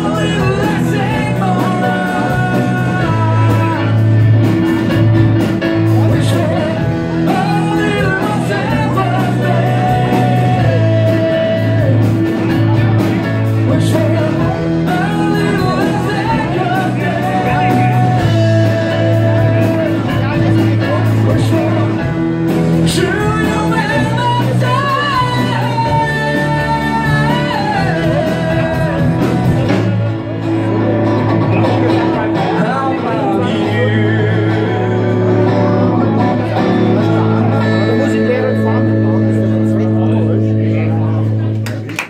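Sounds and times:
person singing long notes: 0.0 - 4.2, 6.1 - 12.3, 13.6 - 29.7, 32.4 - 39.2
bass guitar: 0.0 - 42.0
drums: 0.0 - 42.0
electric guitar: 0.0 - 42.0
keyboard: 0.0 - 42.0.

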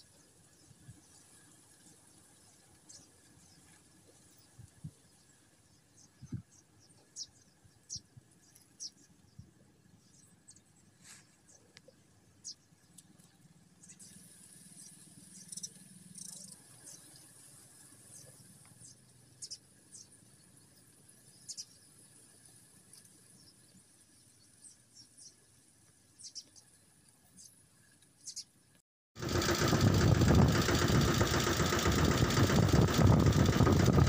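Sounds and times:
small birds chirping: 26.2 - 27.6, 28.2 - 28.6
low hum: 29.2 - 34.0.

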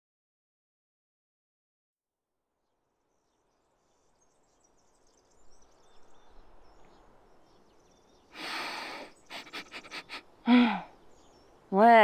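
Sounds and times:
faint birdsong: 2.5 - 12.0
breathy rush of air: 8.3 - 11.0.

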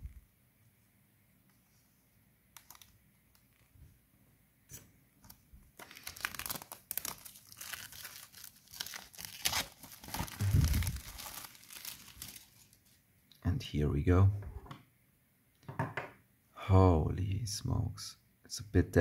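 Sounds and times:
cellophane crinkling and tearing: 2.6 - 3.6, 5.3 - 13.0.

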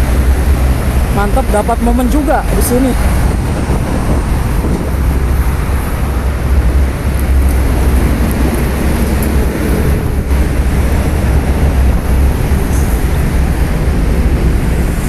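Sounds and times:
low vehicle rumble: 0.0 - 15.0.

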